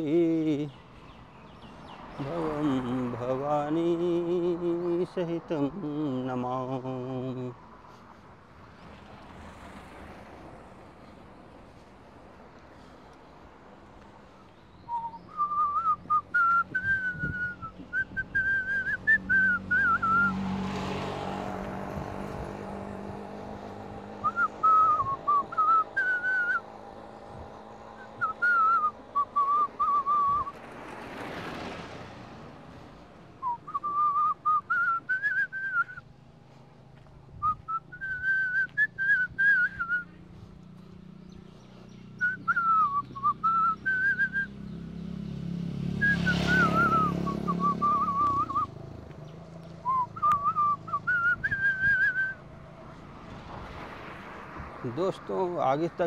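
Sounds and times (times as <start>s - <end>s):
passing vehicle: 0.0s - 56.0s
person whistling: 14.8s - 20.4s, 24.2s - 26.6s, 28.0s - 30.6s, 33.4s - 36.0s, 37.4s - 40.2s, 42.2s - 44.5s, 46.0s - 48.7s, 49.8s - 52.4s.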